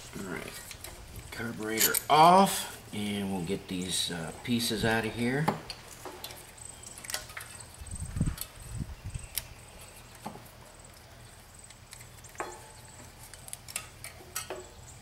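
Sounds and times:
small metal parts clicking: 0.5s - 2.2s.

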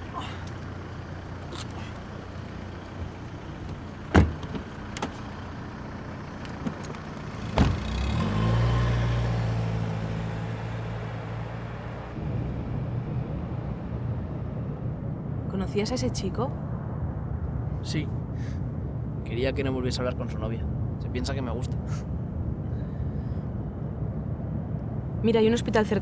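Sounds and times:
car engine running: 0.0s - 19.2s
car door slamming: 4.1s - 5.2s, 7.5s - 7.8s.

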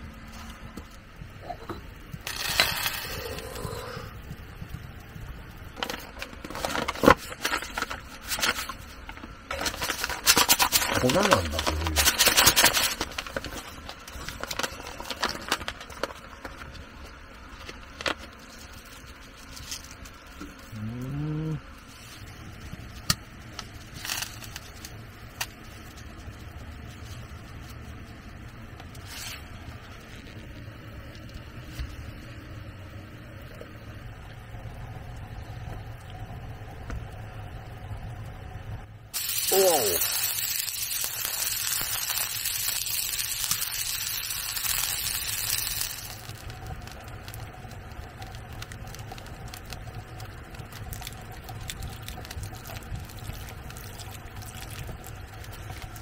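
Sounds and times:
low steady rumble: 0.0s - 39.2s, 40.0s - 56.0s
paper bag rustling: 5.8s - 16.6s
packet and cardboard box crinkling: 5.8s - 16.9s, 39.2s - 47.4s, 48.2s - 56.0s.

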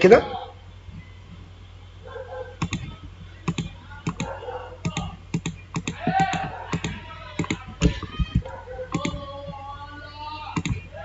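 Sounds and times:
computer mouse clicking: 2.6s - 9.6s, 10.6s - 10.9s
wordless voice murmur: 5.9s - 11.0s.

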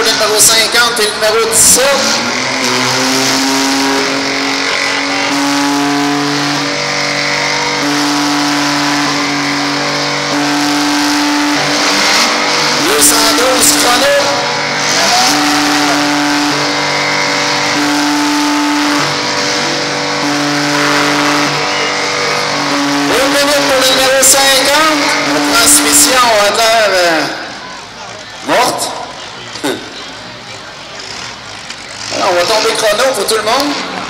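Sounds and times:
car engines revving hard: 0.0s - 34.0s.

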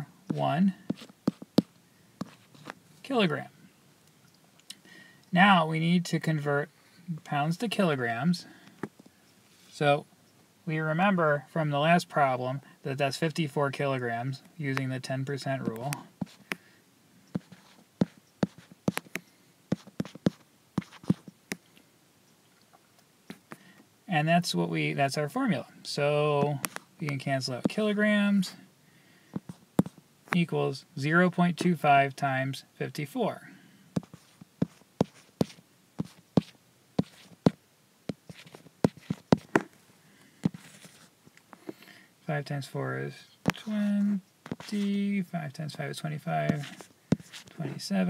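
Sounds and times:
stylus tapping on touchscreen: 0.9s - 2.8s, 17.4s - 21.6s, 29.4s - 30.4s.

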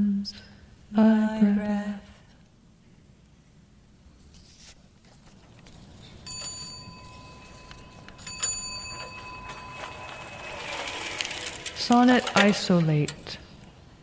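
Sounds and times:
small bell ringing: 6.2s - 11.2s.

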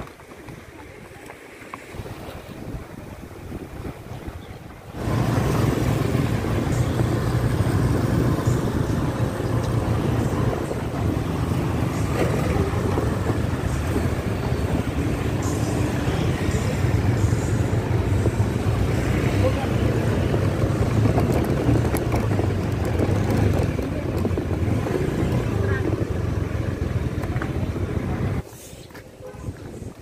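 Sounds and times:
vehicle engine and road noise: 0.0s - 30.0s.

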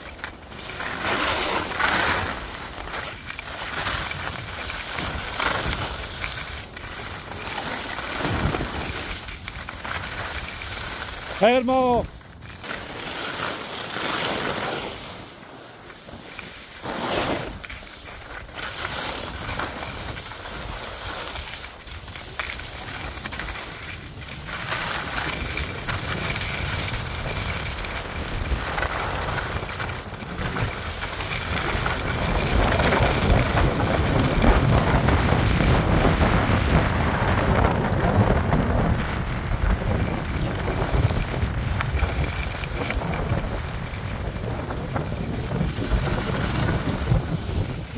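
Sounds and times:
skis swishing over packed snow: 0.0s - 47.9s
wind rushing over microphone: 24.0s - 47.9s.

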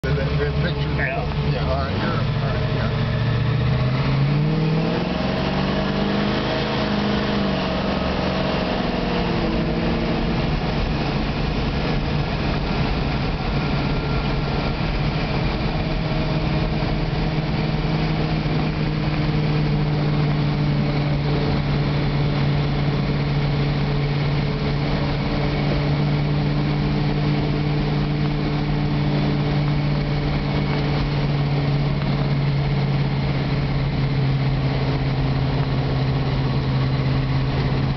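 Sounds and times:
car engine cruising: 0.0s - 37.9s.

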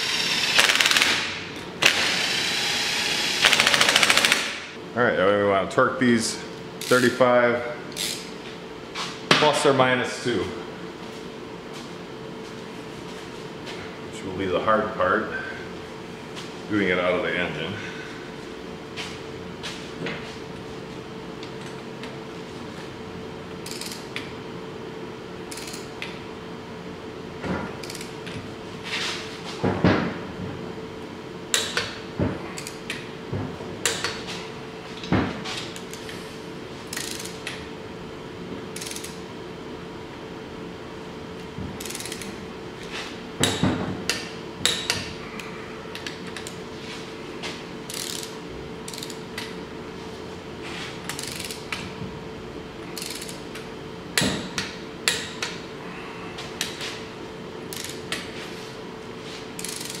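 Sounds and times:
socket wrench ratcheting: 23.6s - 24.0s, 25.5s - 25.8s, 36.9s - 37.6s, 38.8s - 39.2s, 41.8s - 42.3s, 47.9s - 48.3s, 48.9s - 49.5s, 51.1s - 51.6s, 53.0s - 53.4s, 57.7s - 58.0s, 59.6s - 60.0s.

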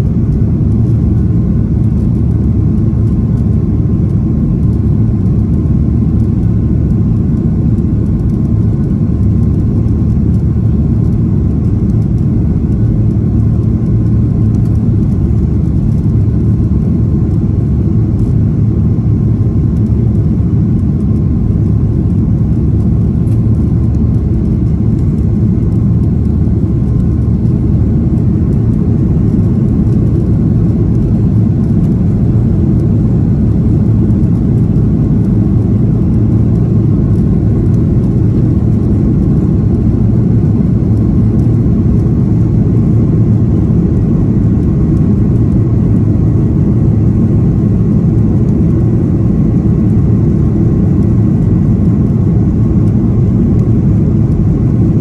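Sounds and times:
jet engine cabin rumble: 0.0s - 55.0s.

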